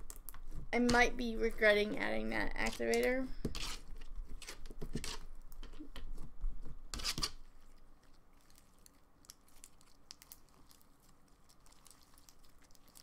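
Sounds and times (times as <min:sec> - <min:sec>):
slime tearing and crackling: 0:08.4 - 0:13.0.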